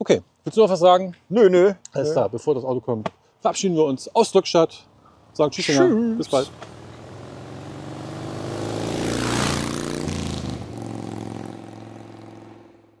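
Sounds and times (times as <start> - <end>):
car driving past: 6.3 - 13.0.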